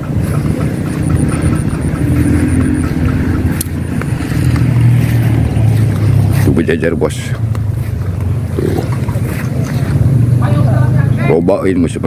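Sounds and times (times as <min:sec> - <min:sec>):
faint fast high ticking: 0:00.0 - 0:04.7
steady low rumble: 0:00.0 - 0:12.0.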